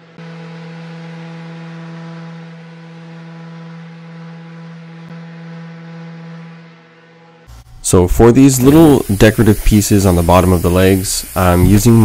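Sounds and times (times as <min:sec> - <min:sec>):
orbital sander on wood: 0:00.1 - 0:12.0.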